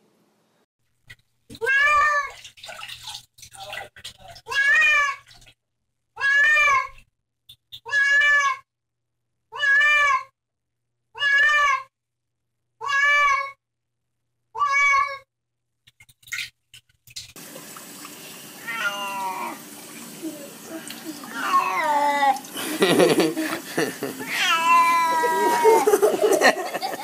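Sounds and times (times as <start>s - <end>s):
tap water running: 1.0s - 5.6s, 15.9s - 27.0s
cat meowing: 4.5s - 5.2s, 6.2s - 7.0s, 7.9s - 8.6s, 9.5s - 10.3s, 11.2s - 11.9s, 12.8s - 13.6s, 14.6s - 15.2s, 18.6s - 19.6s, 21.1s - 22.4s, 24.2s - 25.8s
kitten mewing: 18.6s - 19.6s, 20.2s - 22.4s, 24.1s - 25.9s.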